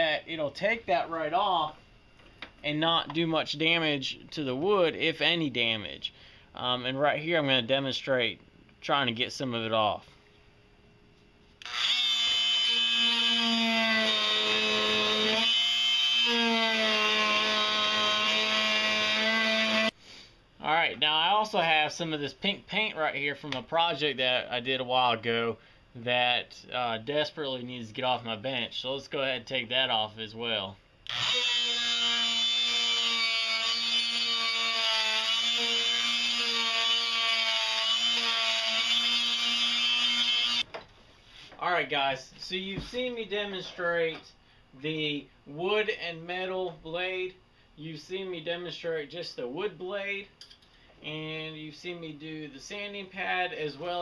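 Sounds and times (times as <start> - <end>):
oscillating multi-tool buzzing: 11.6 - 19.9, 31.0 - 40.7.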